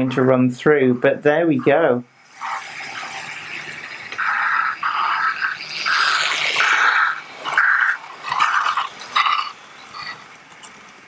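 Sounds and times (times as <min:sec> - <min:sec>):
model train running on track: 0:02.2 - 0:11.0.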